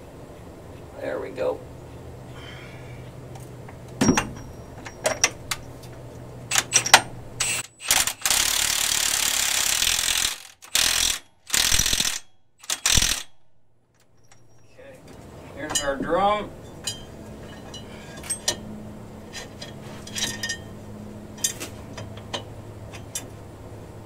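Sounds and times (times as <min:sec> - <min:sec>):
impact wrench bursts: 0:06.5 - 0:13.4.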